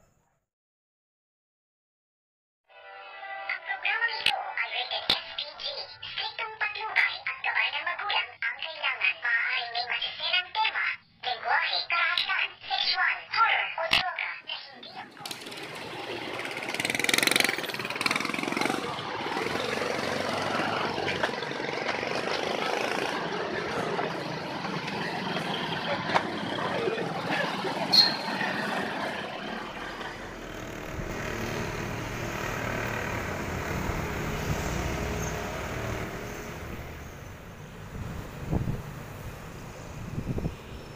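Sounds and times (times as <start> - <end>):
vehicle engines passing: 15.0 - 40.9.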